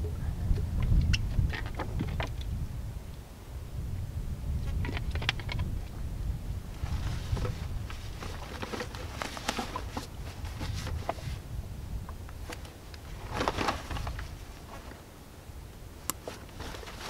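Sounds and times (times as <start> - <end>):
wind rumbling on microphone: 0.0 - 17.0
outdoor gear rustling and clicking: 0.8 - 2.5, 4.6 - 6.0, 6.8 - 11.4, 12.0 - 15.1, 16.0 - 17.0.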